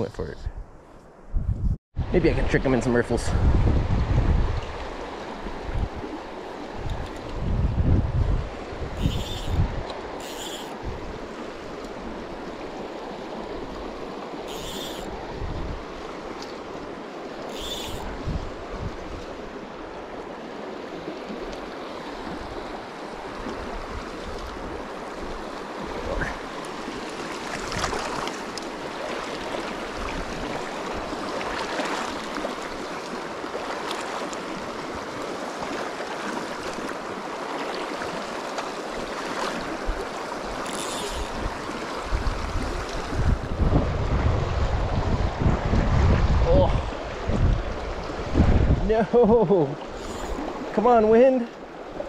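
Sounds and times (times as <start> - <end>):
wind gusts on microphone: 0.0 - 17.0, 17.9 - 20.2, 39.4 - 52.0
creek water rushing: 2.1 - 52.0.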